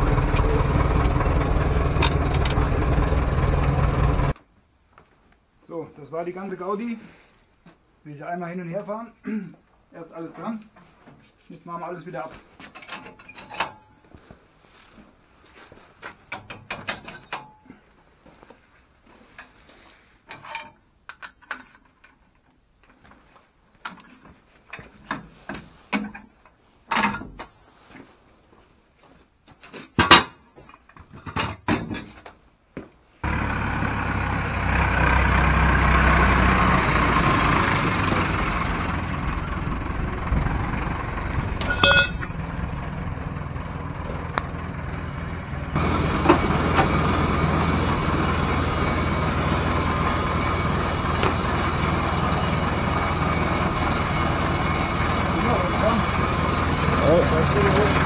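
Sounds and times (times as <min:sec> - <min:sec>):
tractor diesel engine: 0:00.0 - 0:04.4, 0:33.2 - 0:58.0
metallic clanks and knocks: 0:12.6 - 0:14.0, 0:16.1 - 0:17.7, 0:20.3 - 0:22.2, 0:23.8 - 0:27.6, 0:29.9 - 0:32.2, 0:41.5 - 0:42.6.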